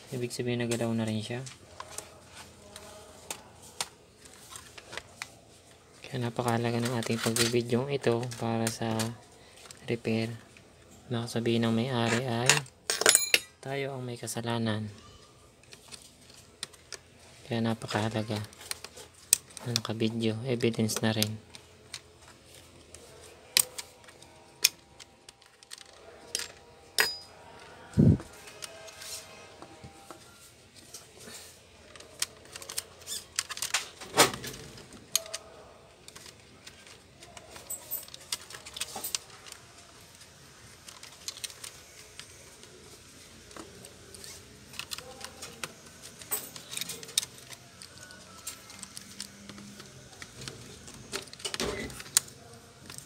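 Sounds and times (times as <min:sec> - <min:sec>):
laptop casing clicking and rattling: 0:31.8 - 0:39.6, 0:44.7 - 0:53.0.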